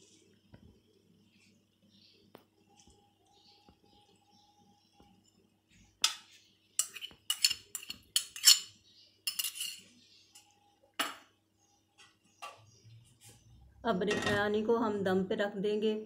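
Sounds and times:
metal utensils clinking on a pot: 6.0s - 11.2s, 14.0s - 14.5s.

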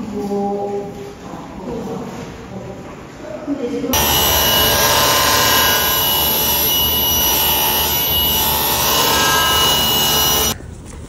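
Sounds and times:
table saw cutting board: 4.0s - 10.6s.

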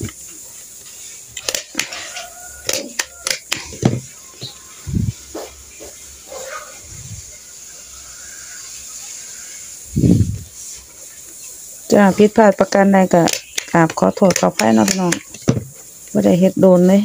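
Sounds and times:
handheld stapler clicks: 1.4s - 1.9s, 2.6s - 3.7s, 13.2s - 15.4s.

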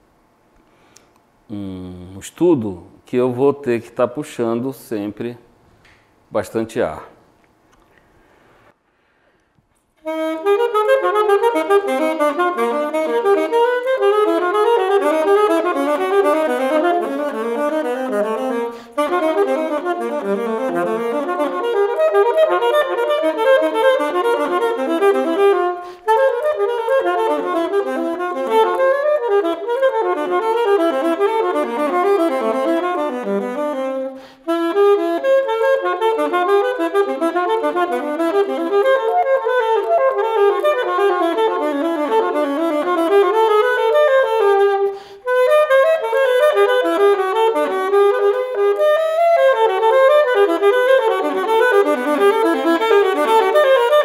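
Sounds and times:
quick breaths: 0.6s - 1.2s, 7.9s - 9.7s, 18.7s - 19.0s, 25.8s - 26.1s, 34.2s - 34.5s, 44.9s - 45.2s
saxophone running notes: 10.0s - 54.0s.

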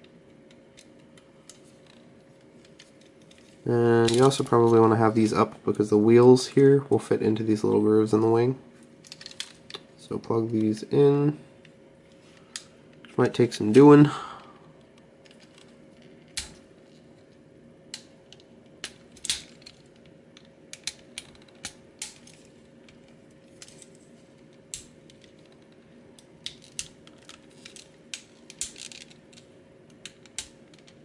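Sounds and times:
faint steady hum: 0.0s - 31.0s
plastic toy parts clicking: 26.4s - 29.4s.

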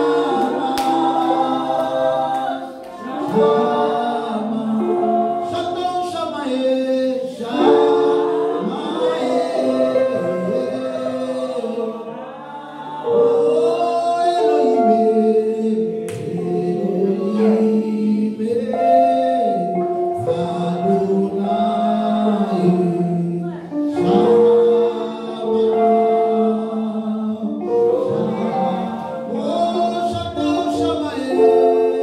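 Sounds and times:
man singing gospel song: 0.0s - 12.3s, 12.9s - 32.0s.

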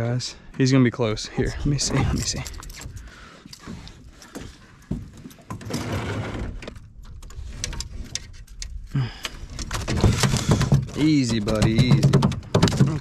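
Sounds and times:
landing net knocking on metal deck: 10.4s - 13.0s.

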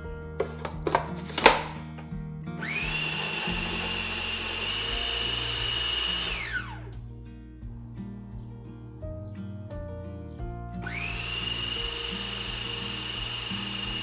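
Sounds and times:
food processor motor whine: 2.6s - 6.9s, 10.9s - 14.0s.

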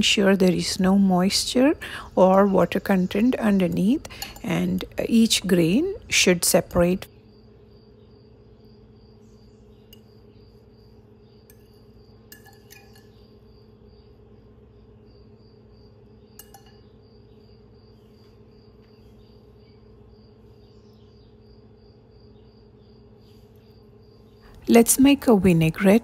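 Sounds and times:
steady low hum: 0.0s - 26.0s
fork clinking against glass bowl: 4.2s - 4.5s, 12.3s - 13.2s, 16.4s - 16.9s.

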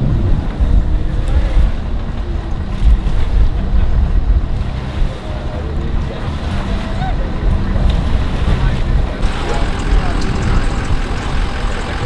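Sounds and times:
outboard motor running: 0.0s - 12.0s
propeller churning water: 0.0s - 12.0s
wind noise on microphone: 0.0s - 12.0s.

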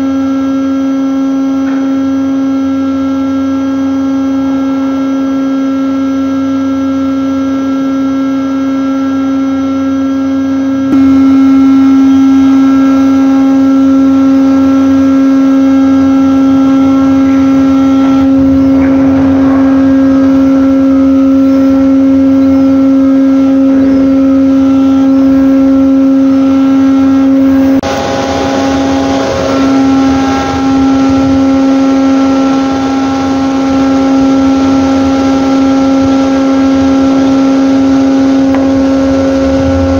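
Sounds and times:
hydraulic winch humming: 10.1s - 39.9s.

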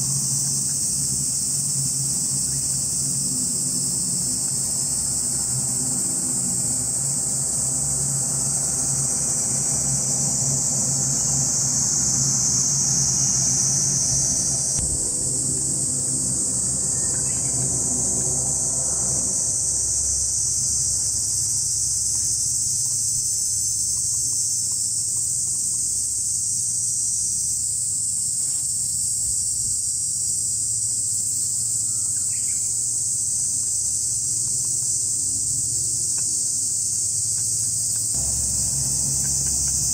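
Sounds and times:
distant turbine and propeller hum: 0.0s - 24.5s, 32.8s - 39.9s
cicadas chorus: 0.0s - 39.9s.

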